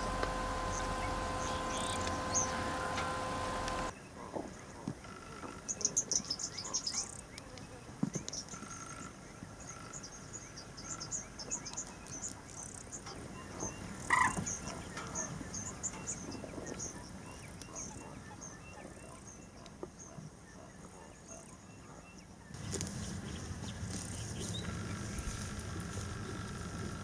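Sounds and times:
birds chirping: 0.0s - 27.0s
insects: 5.0s - 16.8s, 22.6s - 27.0s.

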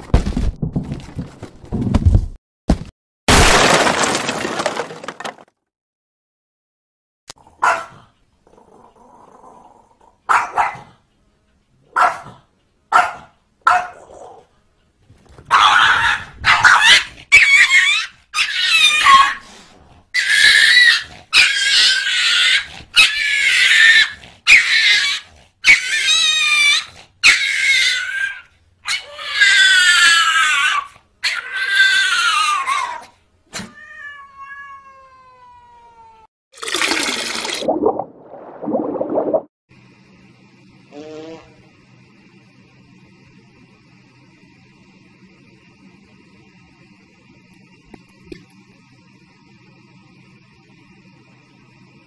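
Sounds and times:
cat yowling: 20.2s - 36.3s.

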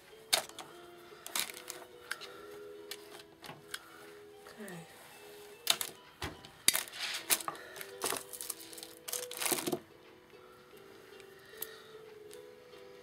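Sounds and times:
plastic beads clattering: 0.3s - 2.2s, 5.6s - 6.0s, 6.6s - 9.8s.

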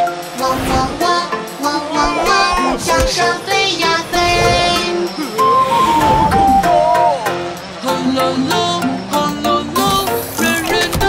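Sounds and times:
person singing: 0.1s - 11.0s
upbeat backing music: 2.0s - 5.1s.

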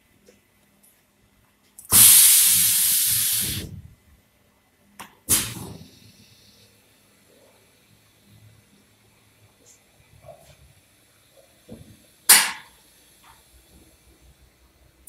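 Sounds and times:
spray gun air hiss: 1.9s - 3.8s, 5.3s - 6.7s.

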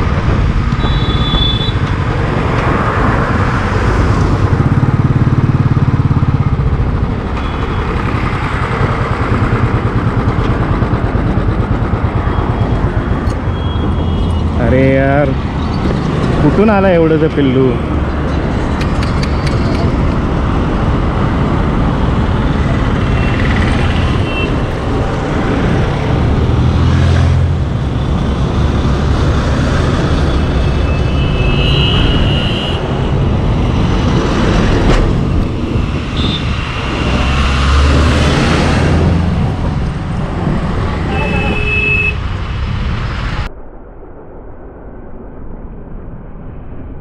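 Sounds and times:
highway traffic: 0.0s - 43.6s
wind rushing over microphone: 0.0s - 47.0s
horn toots: 0.8s - 1.8s, 30.7s - 33.2s, 41.0s - 42.3s
motorcycle engine: 2.4s - 14.6s, 17.9s - 42.8s.

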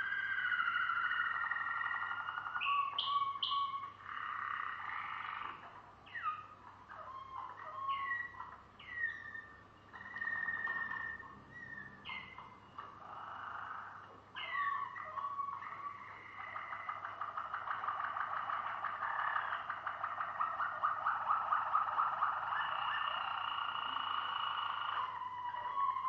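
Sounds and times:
canary singing: 0.0s - 26.0s.

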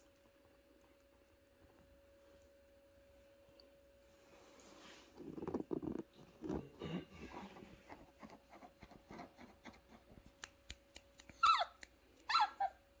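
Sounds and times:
puppy whining: 11.2s - 13.0s.

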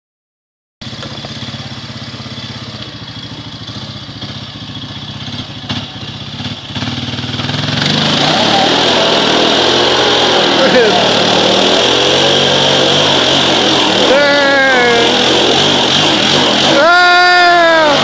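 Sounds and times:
small engines idling and revving: 0.8s - 18.0s.

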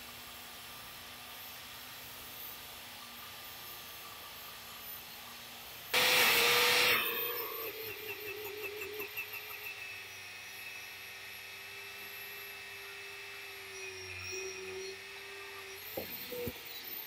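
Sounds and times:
angle grinder grinding metal: 6.0s - 17.0s.

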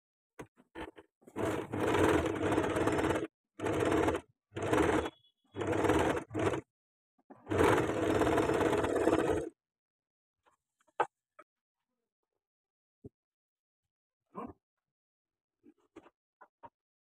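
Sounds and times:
sewing machine stitching: 0.8s - 6.7s, 7.4s - 9.5s.

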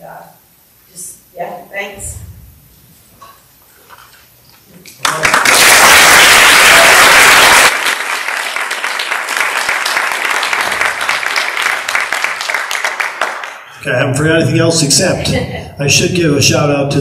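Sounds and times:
audience applauding: 5.0s - 13.7s.

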